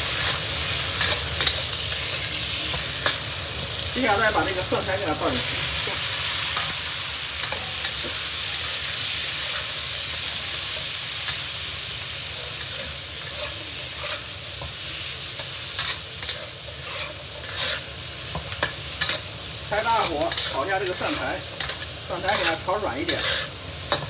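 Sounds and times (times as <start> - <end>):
food sizzling in hot oil: 0.0 - 24.0
metal spatula scraping pan: 12.6 - 14.3, 15.8 - 24.0.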